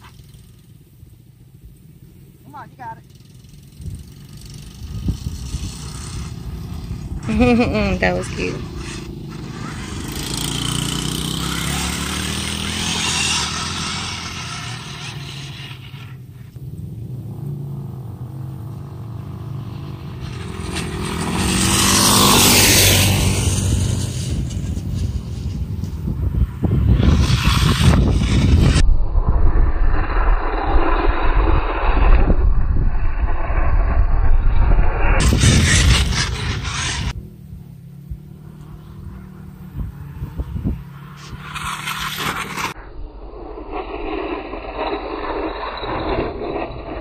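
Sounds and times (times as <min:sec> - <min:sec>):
rc car motor revving: 0:02.5 - 0:17.6, 0:18.6 - 0:28.8, 0:35.0 - 0:37.2, 0:38.2 - 0:42.8, 0:43.4 - 0:47.0
car sliding through loose dirt: 0:03.2 - 0:28.8, 0:35.0 - 0:37.4, 0:38.1 - 0:42.8
wind buffeting microphone: 0:03.7 - 0:15.6, 0:18.2 - 0:41.9.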